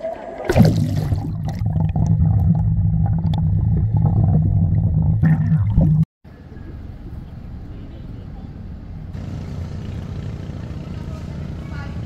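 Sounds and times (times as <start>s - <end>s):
underwater churning rumble: 0.5s - 6.0s.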